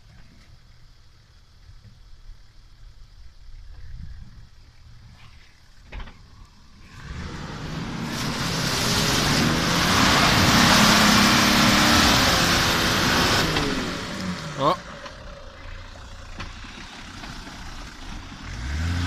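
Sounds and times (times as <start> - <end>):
engine working under load: 5.8 - 19.0.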